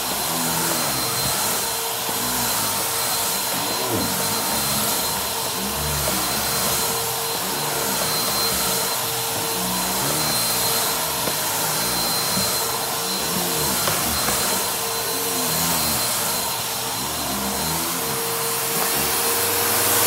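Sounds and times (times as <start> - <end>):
vacuum cleaner running over rug: 0.0 - 20.0.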